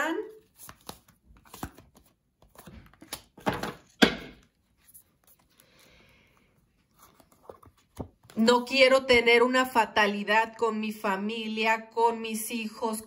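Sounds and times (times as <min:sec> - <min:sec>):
cards rustling: 0:00.3 - 0:08.4.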